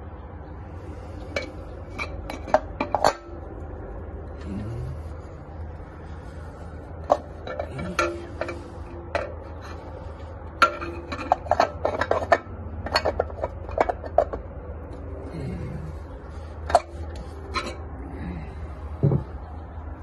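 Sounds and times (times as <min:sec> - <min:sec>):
metal parts clinking and knocking: 0:01.2 - 0:03.6, 0:06.9 - 0:15.1, 0:16.6 - 0:17.9, 0:19.0 - 0:19.4.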